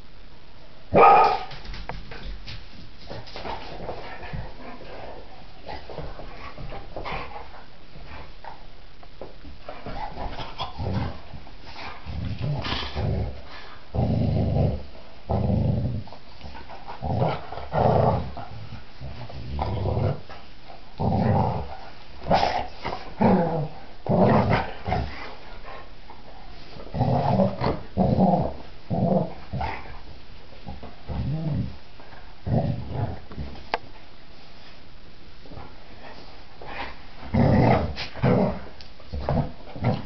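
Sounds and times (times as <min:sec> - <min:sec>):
dogs growling: 0:09.8 - 0:25.9, 0:26.8 - 0:30.0, 0:36.6 - 0:40.0.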